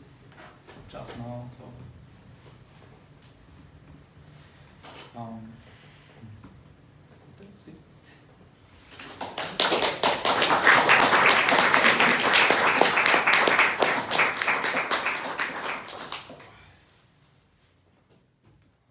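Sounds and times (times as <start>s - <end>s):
audience applauding: 9.0s - 16.5s.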